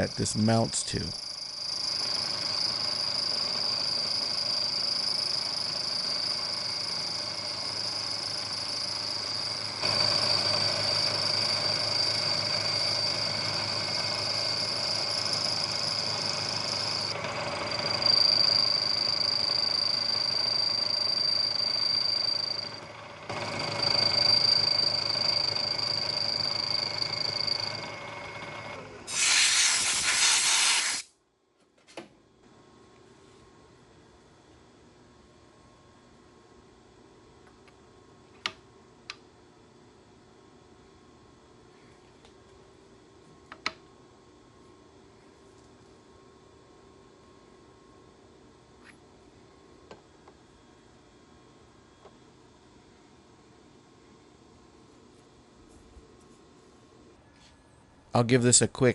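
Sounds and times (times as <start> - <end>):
machine tool running: 0.0 - 31.0
high whine of cutting steel: 0.0 - 31.1
loud hiss burst: 29.1 - 31.1.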